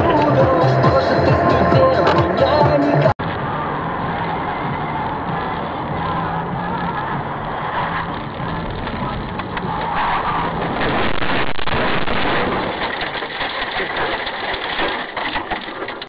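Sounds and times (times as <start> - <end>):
car engine: 0.0 - 16.0
road noise: 0.0 - 16.0
small knocks and crackles: 12.0 - 16.0.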